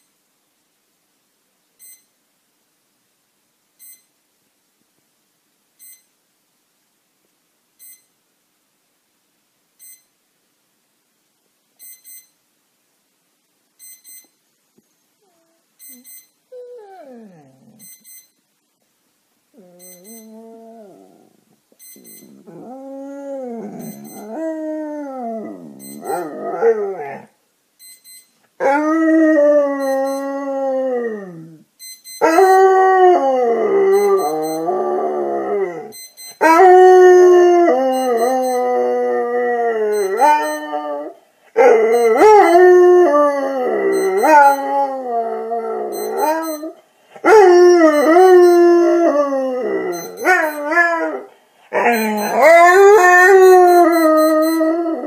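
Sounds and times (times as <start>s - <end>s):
faint high beeping: 1.8s - 2.2s, 3.8s - 4.2s, 5.8s - 6.2s, 7.8s - 8.2s, 9.8s - 10.2s, 11.8s - 12.4s, 13.8s - 14.6s, 15.2s - 18.5s, 19.6s - 21.1s, 21.8s - 27.0s, 27.8s - 28.5s, 29.4s - 30.9s, 31.8s - 33.0s, 33.6s - 36.8s, 37.4s - 46.8s, 47.5s - 51.2s, 51.8s - 55.0s
dog howling and grumbling: 16.6s - 17.8s, 19.6s - 21.4s, 22.3s - 27.3s, 30.4s - 31.6s, 34.7s - 35.9s, 38.8s - 46.0s.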